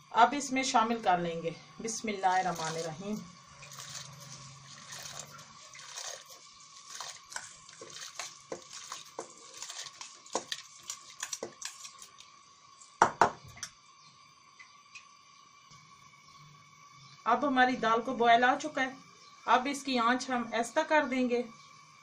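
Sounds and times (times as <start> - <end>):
lentils rattling: 3.6 - 12.2.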